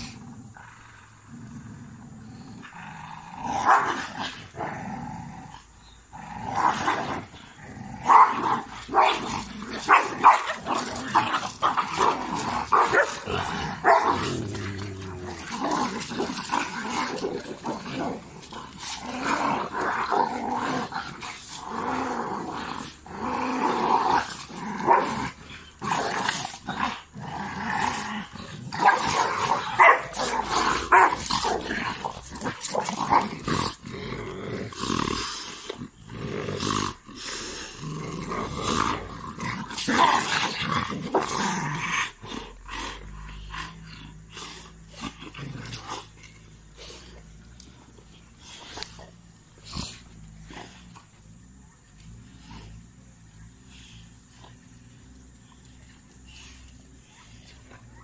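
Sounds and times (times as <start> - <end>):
dogs snarling growling and barking: 0.0 - 58.0.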